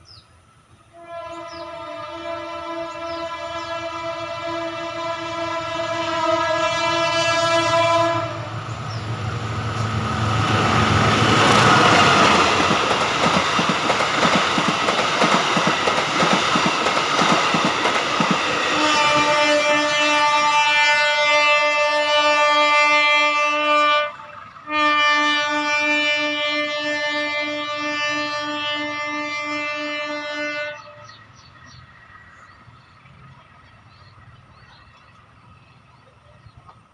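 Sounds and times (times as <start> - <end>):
bird chirps: 0.0 - 0.4, 1.3 - 1.8, 8.7 - 9.3, 30.8 - 36.8
train passing with wheel clatter: 0.0 - 36.9
train horn chord: 0.9 - 12.8, 18.5 - 31.2.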